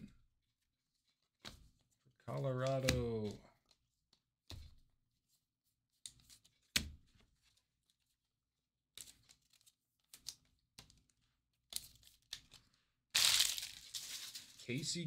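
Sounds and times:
cards and plastic sleeve rustling: 0:00.4 - 0:04.9, 0:09.0 - 0:15.0.

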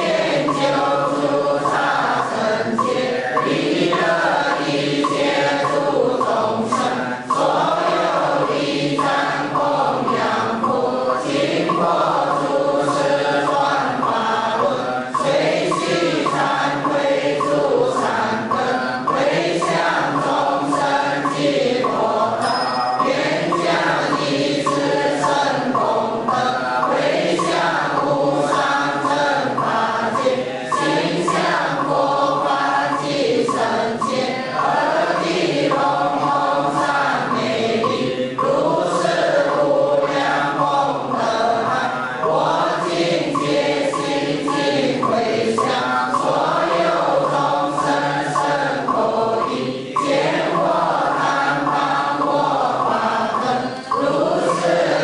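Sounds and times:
group chanting in unison: 0:00.0 - 0:55.0.

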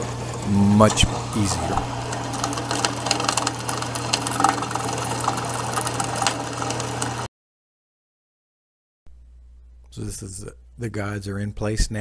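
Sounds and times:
drill bit cutting metal: 0:00.0 - 0:07.2
drill press motor hum: 0:00.0 - 0:07.3.

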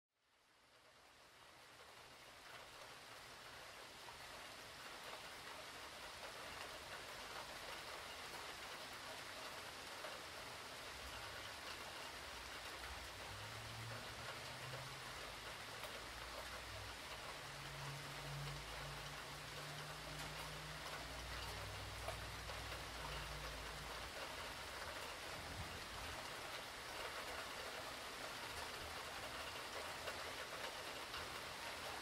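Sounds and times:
steady rain hiss: 0:00.2 - 0:32.0.

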